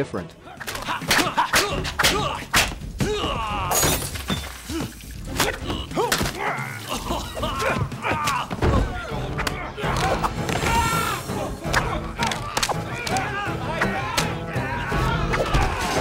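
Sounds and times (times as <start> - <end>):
men grunting and shouting: 0.4 - 4.0, 4.7 - 16.0
glass shattering: 3.7 - 5.5.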